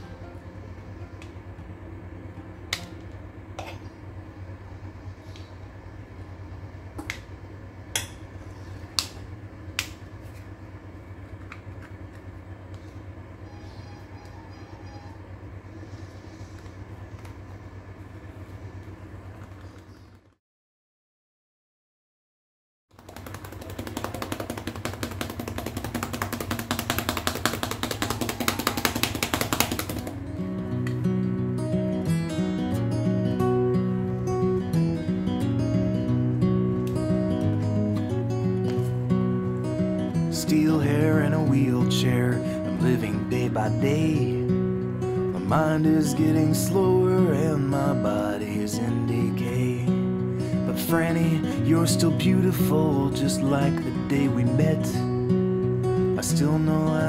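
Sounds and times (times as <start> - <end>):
acoustic guitar music: 0.0 - 3.0, 29.8 - 57.0
steady low hum: 0.0 - 20.4, 23.0 - 57.0.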